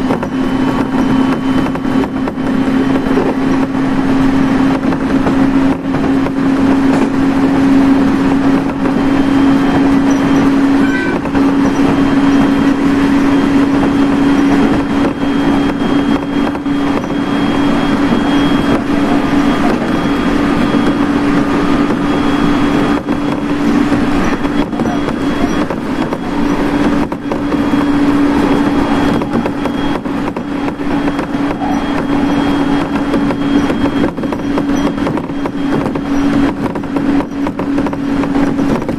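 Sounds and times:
constant low hum: 0.0s - 38.9s
train wheels rumbling on rails: 0.0s - 38.9s.

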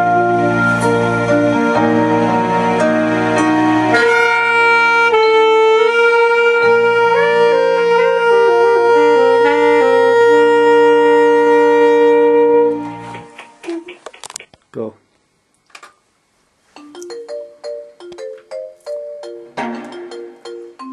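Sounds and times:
slow saxophone melody: 0.0s - 13.9s.

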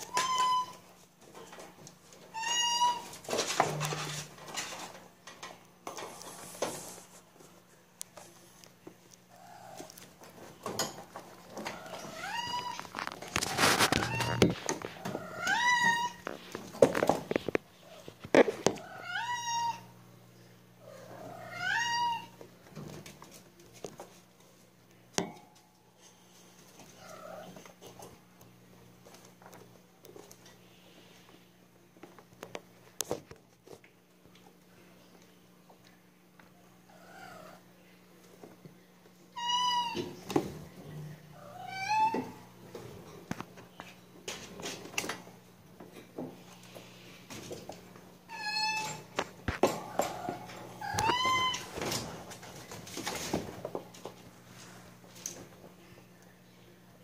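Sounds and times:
kittens scrabbling in a cage: 0.0s - 7.3s, 9.7s - 18.8s, 41.9s - 45.4s, 46.0s - 55.7s.

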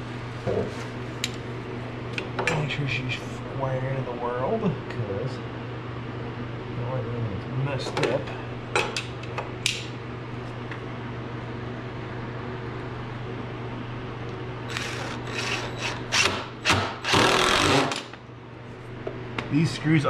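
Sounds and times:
impact driver driving screws: 14.7s - 18.1s.

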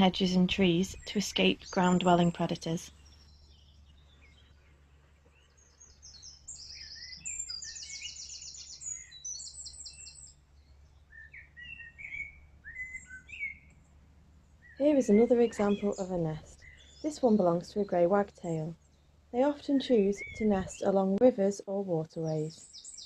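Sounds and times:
songbirds singing: 0.0s - 23.0s
lower whistled bird phrases: 6.2s - 10.3s, 11.1s - 13.6s, 19.8s - 20.9s.

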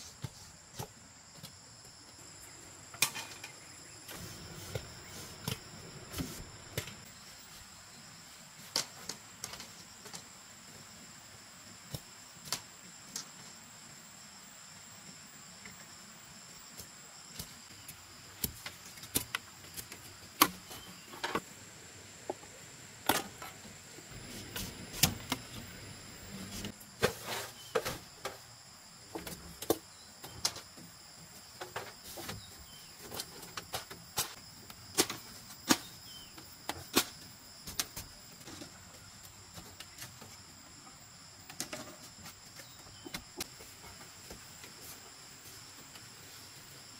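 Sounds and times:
high insect drone: 0.5s - 46.9s.

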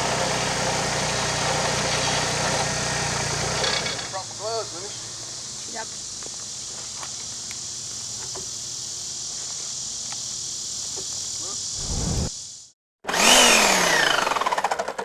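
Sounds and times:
insects droning: 4.2s - 12.8s
low rumble: 11.8s - 12.3s.

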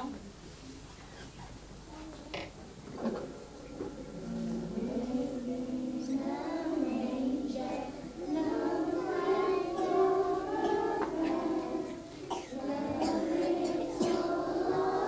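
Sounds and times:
children singing a lullaby: 2.4s - 15.0s.

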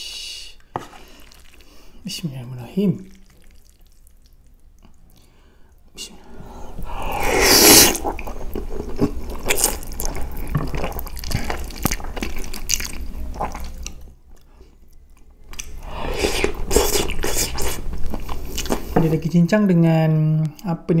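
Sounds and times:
wet chewing and lip smacks: 3.1s - 5.3s, 7.9s - 19.0s
person slurping spaghetti: 6.8s - 13.9s, 15.6s - 18.9s.

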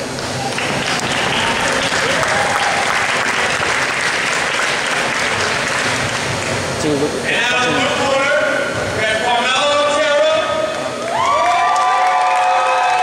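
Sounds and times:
audience applauding: 0.4s - 6.7s, 10.7s - 13.0s.

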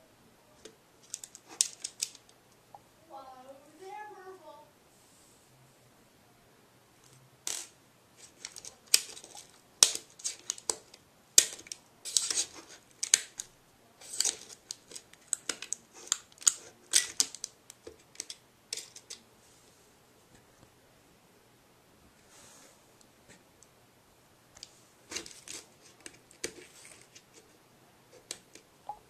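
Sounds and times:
small items clicking against metal tin: 1.0s - 2.3s, 8.3s - 19.2s.

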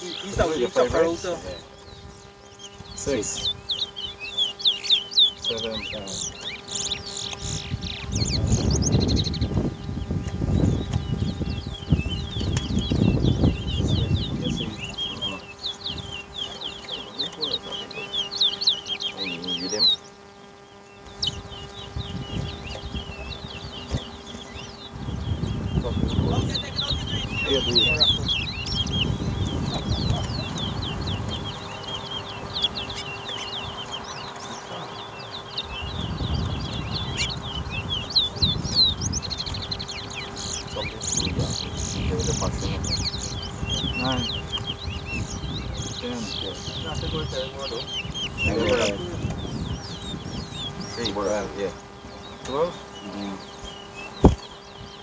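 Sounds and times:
finches chirping: 0.0s - 55.0s.

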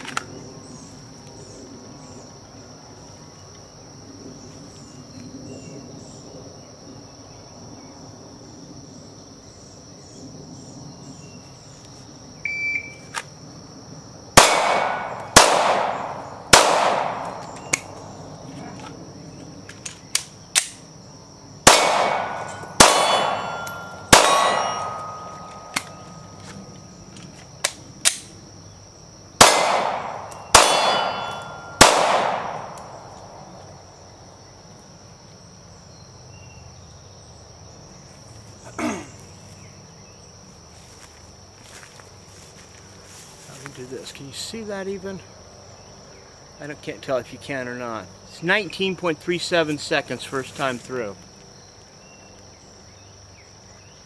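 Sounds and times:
pistol shots: 14.4s - 17.9s, 21.6s - 25.9s, 29.4s - 33.1s
steel targets ringing: 21.8s - 25.8s, 30.5s - 32.0s.

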